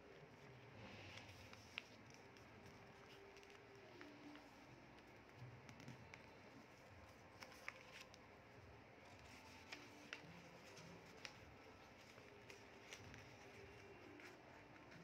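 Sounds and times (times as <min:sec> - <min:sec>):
paper rustling while folded: 0:00.0 - 0:15.0
quiet room hiss: 0:00.0 - 0:15.0.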